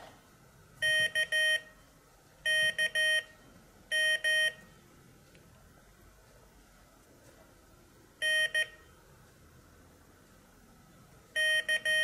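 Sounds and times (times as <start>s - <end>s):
morse code beeps: 0.8s - 1.8s, 2.5s - 4.6s, 8.2s - 8.8s, 11.4s - 12.0s.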